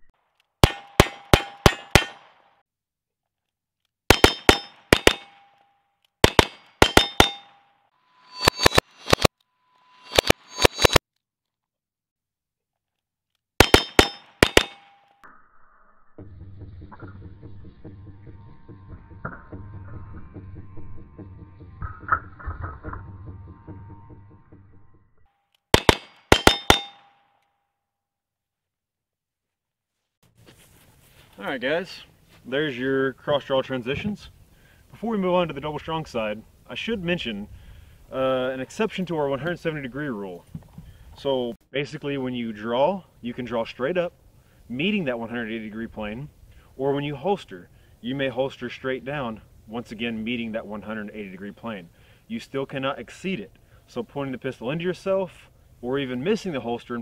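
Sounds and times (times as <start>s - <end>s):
metallic target clang: 0.6s - 2.5s, 4.1s - 9.3s, 9.9s - 11.0s, 13.6s - 15.2s, 25.8s - 27.3s
short metallic ring: 4.1s - 11.0s, 13.6s - 15.2s, 25.8s - 27.4s.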